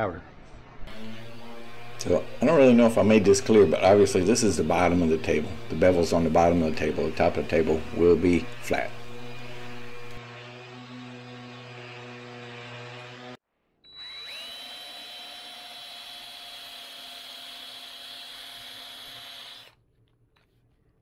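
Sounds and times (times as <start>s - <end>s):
cordless drill boring into wood: 0.9s - 11.6s, 13.9s - 19.8s
orbital sander humming: 0.9s - 19.8s.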